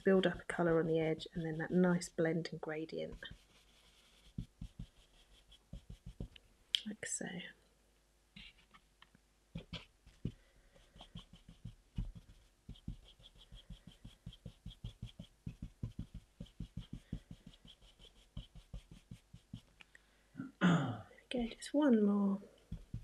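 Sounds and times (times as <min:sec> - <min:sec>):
paintbrush dusting petal: 0:00.0 - 0:02.2, 0:02.8 - 0:06.4, 0:09.6 - 0:19.8, 0:22.6 - 0:23.0.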